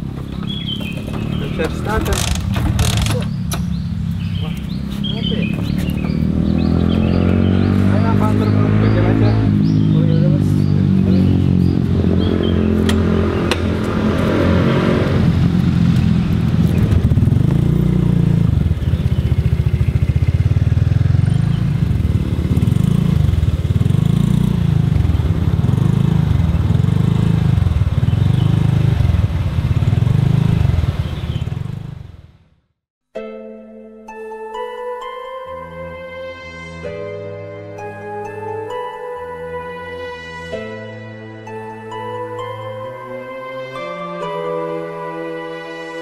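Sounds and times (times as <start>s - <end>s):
small motorcycle engines pulling away: 0.0s - 32.2s.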